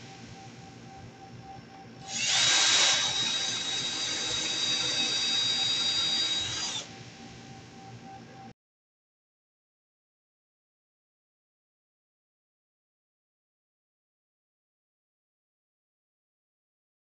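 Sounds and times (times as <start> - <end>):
cordless drill whining: 2.0 - 7.1.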